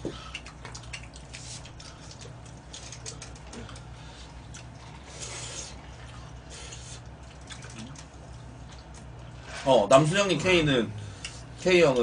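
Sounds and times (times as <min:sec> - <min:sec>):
chewing and slurping: 0:00.0 - 0:09.6
steady low hum: 0:00.0 - 0:12.0.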